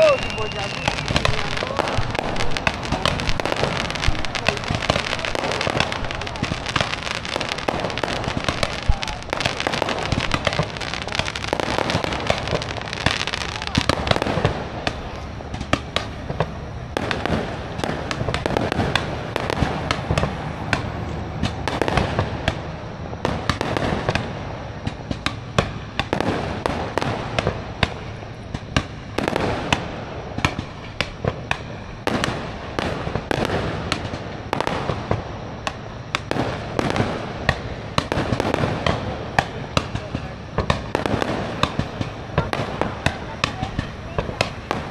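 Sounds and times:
fireworks bangs and crackles: 0.0s - 44.9s.

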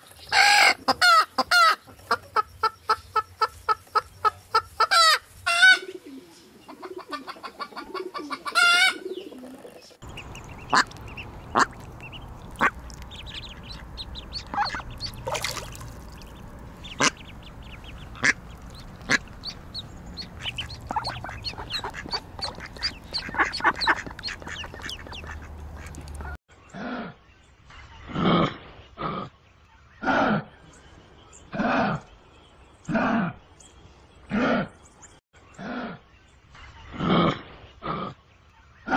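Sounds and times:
chickens clucking: 0.2s - 26.4s
ducks quacking: 10.0s - 26.4s.

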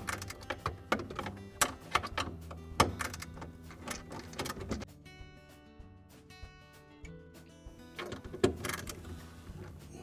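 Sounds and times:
nut driver clicking and scraping: 0.0s - 4.9s
soft background music: 0.0s - 10.0s.

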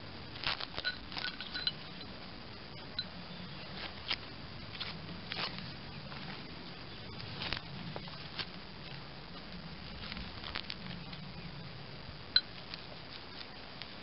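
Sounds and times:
faint low hum: 0.0s - 14.0s
tape peeling with crackling rips: 0.3s - 1.6s, 3.7s - 6.4s, 7.0s - 11.3s, 12.5s - 14.0s.

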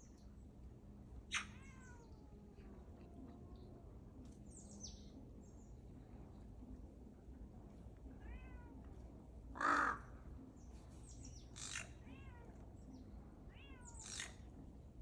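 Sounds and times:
cat meowing: 1.3s - 2.2s, 8.2s - 8.8s, 11.9s - 12.6s, 13.5s - 14.3s
crows cawing: 9.6s - 10.2s.

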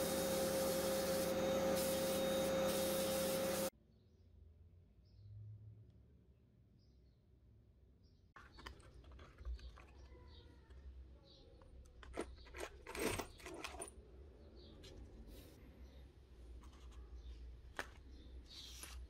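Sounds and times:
paper and plastic cup handling: 8.4s - 10.4s.

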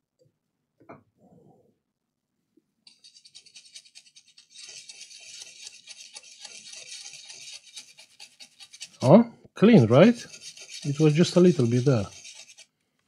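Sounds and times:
brush scrubbing circuit board: 2.9s - 12.8s.

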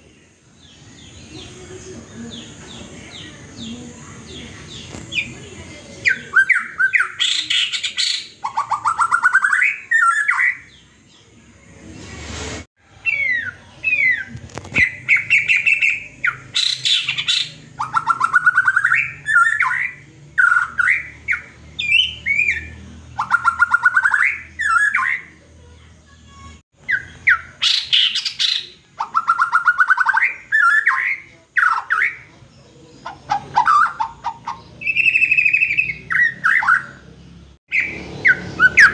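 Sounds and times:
bird singing repeated phrase: 0.0s - 11.4s, 13.0s - 25.4s, 26.8s - 32.3s, 33.0s - 38.9s
whistled bird call notes: 33.6s - 37.0s, 37.7s - 38.9s.

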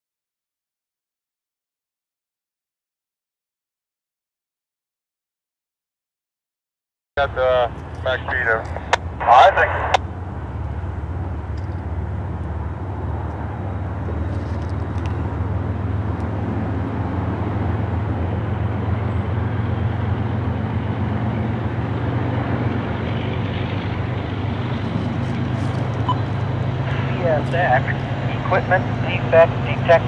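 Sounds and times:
diesel locomotive engine drone: 7.2s - 30.0s.

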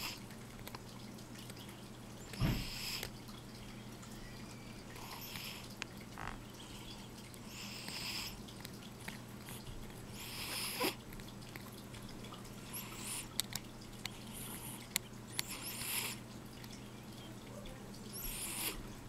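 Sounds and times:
dental scaler scraping teeth: 14.4s - 16.2s, 18.1s - 18.8s.

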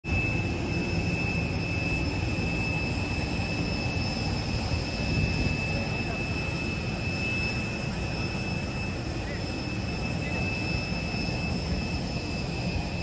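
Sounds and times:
jet turbines whining: 0.0s - 13.0s.

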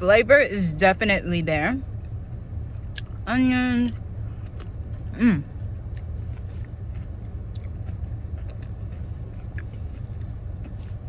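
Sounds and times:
low car cabin hum: 0.0s - 11.0s
person chewing food: 2.8s - 3.2s, 3.9s - 11.0s.

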